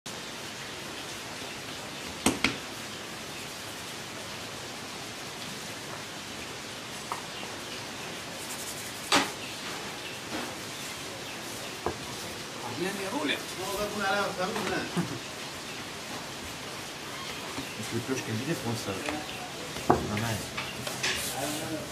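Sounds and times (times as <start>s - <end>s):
steady hiss: 0.1s - 21.9s.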